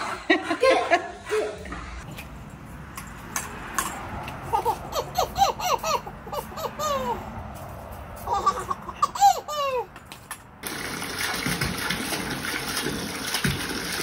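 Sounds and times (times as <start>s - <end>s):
baby giggling: 4.5s - 7.3s, 8.2s - 9.9s.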